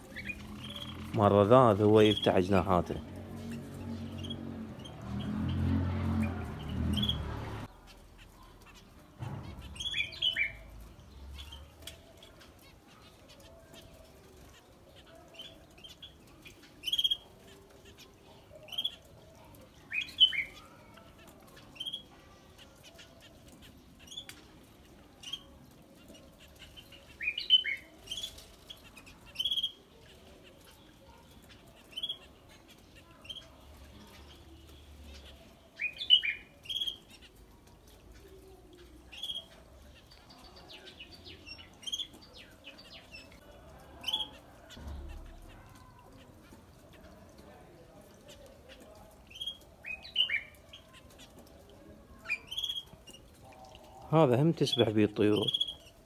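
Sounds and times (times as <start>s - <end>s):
finches chirping: 0.0s - 5.6s, 38.4s - 43.4s.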